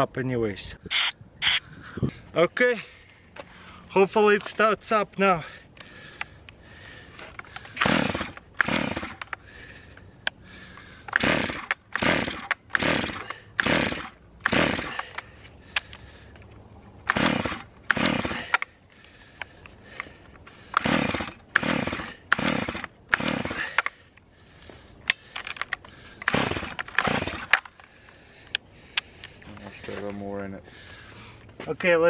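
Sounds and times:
chainsaw recoil starter pulls: 7.2s - 9.4s, 11.1s - 16.0s, 17.0s - 18.8s, 19.4s - 24.0s, 25.1s - 27.9s
engine turning over: 7.6s - 9.3s, 11.1s - 15.3s, 17.0s - 18.7s, 20.6s - 23.9s, 26.2s - 27.8s.

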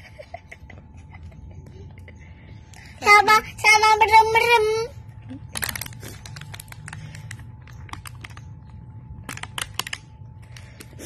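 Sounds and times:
low steady hum: 0.0s - 11.0s
plastic container and bags crinkling: 5.3s - 10.9s.

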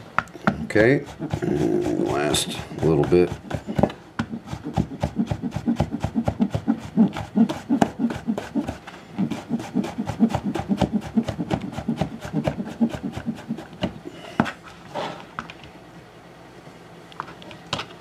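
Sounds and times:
knife chopping on cutting board: 0.5s - 14.5s.

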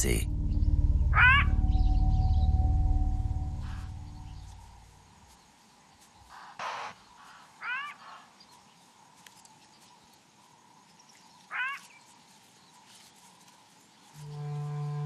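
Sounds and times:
music: 0.0s - 4.4s, 14.2s - 15.0s
jackal yelping alarm calls: 1.1s - 1.6s, 6.3s - 8.3s, 11.5s - 11.9s.

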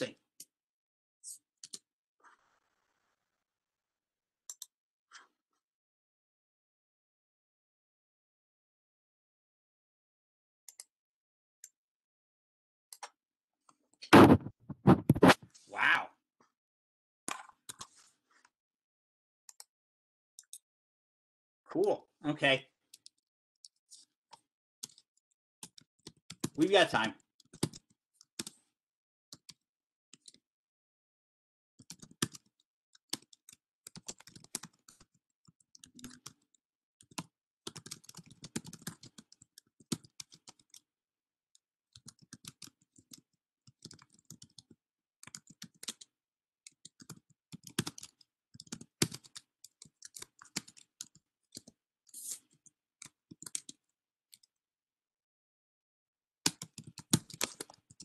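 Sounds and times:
typing on keyboard: 23.0s - 26.6s, 27.4s - 28.6s, 31.8s - 40.8s, 41.9s - 51.8s, 52.6s - 54.5s, 56.4s - 58.0s.

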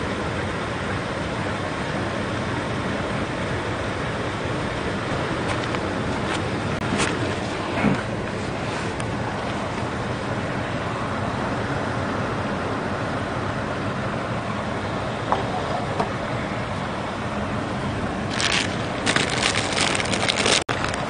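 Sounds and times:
wind: 0.0s - 21.0s
plastic packet crinkling: 18.3s - 21.0s.

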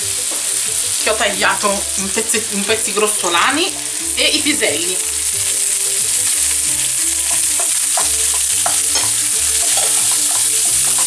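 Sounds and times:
food sizzling in a frying pan: 0.0s - 11.0s
wooden spoon scraping a pan: 7.2s - 11.0s.

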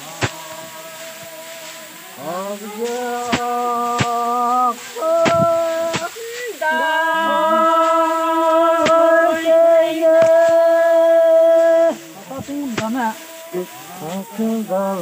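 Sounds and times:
voices singing work chant: 0.0s - 15.0s.

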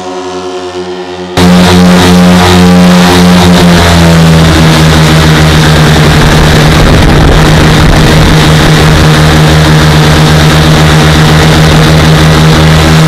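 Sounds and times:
aircraft engines droning: 0.0s - 13.0s
rush of air noise: 1.4s - 13.0s.

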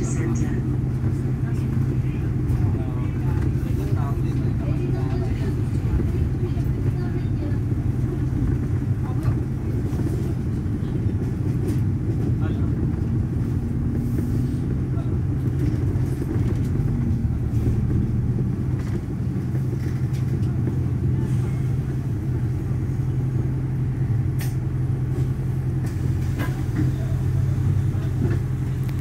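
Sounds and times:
bus engine rumble: 0.0s - 29.0s.

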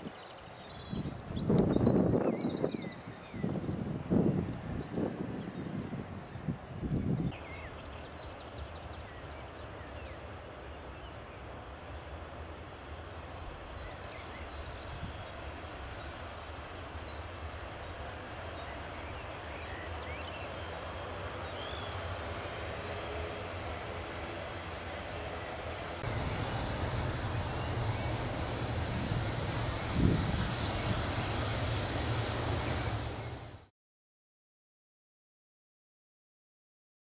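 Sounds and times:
jet engine rush: 20.6s - 33.7s.

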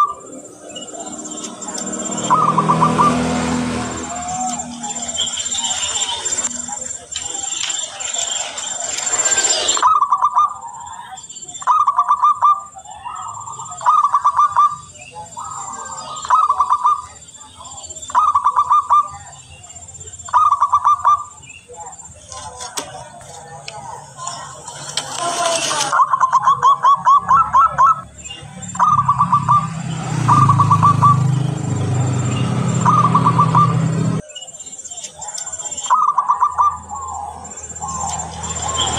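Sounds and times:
dove cooing: 0.0s - 7.5s, 28.6s - 34.2s, 35.9s - 38.9s.

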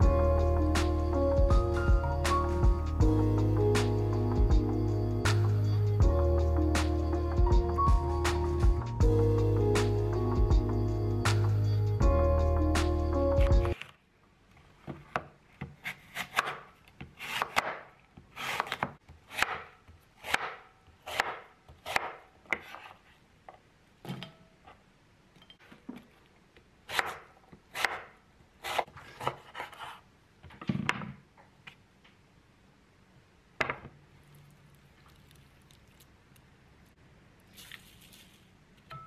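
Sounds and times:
knife slicing apples on wooden board: 15.1s - 23.1s, 26.9s - 30.0s.

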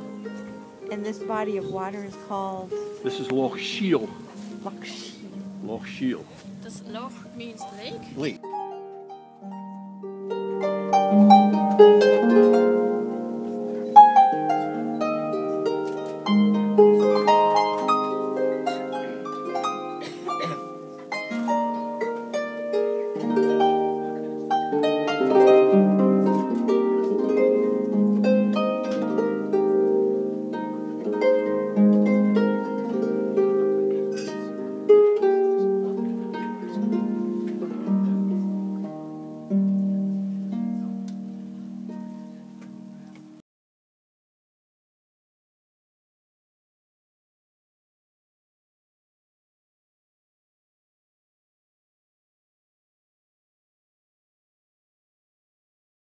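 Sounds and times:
solo harp melody: 0.0s - 43.4s.

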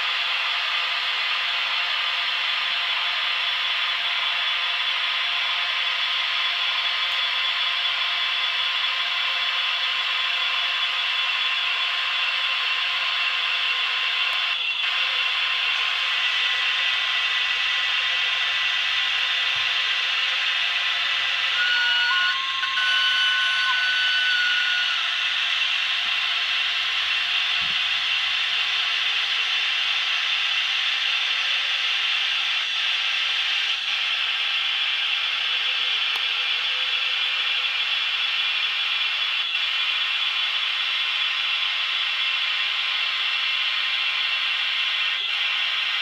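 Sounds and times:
electric locomotive running sounds: 0.0s - 46.0s
steady high tones: 14.6s - 30.1s.

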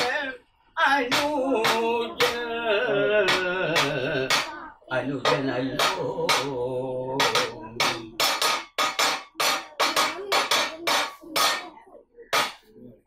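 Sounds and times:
sharp percussion strikes: 1.0s - 2.5s, 5.2s - 11.8s.

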